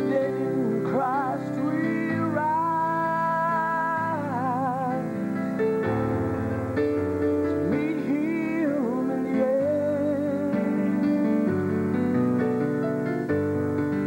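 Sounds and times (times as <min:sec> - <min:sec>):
man singing gospel: 0:00.0 - 0:05.4, 0:07.4 - 0:12.0
piano accompaniment: 0:00.0 - 0:14.0.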